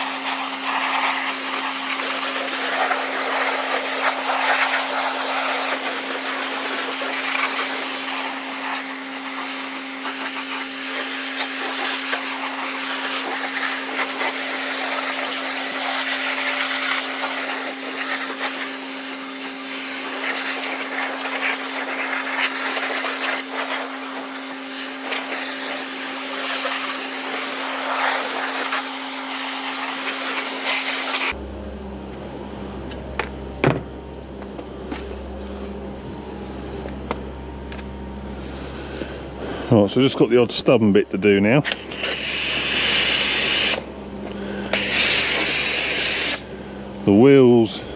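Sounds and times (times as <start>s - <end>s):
pressure washer spraying water: 0.0s - 31.4s, 41.8s - 46.5s
constant hum: 0.0s - 47.9s.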